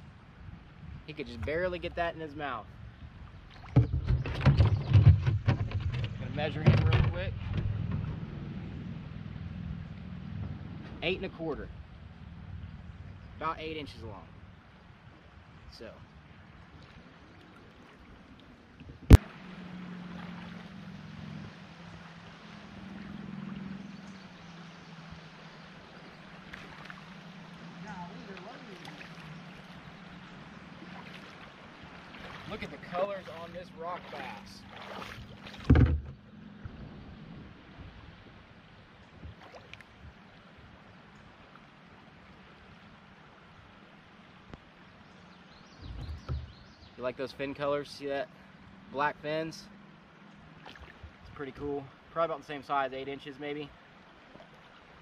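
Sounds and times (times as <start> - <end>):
creek water gurgling: 1.7 - 55.0.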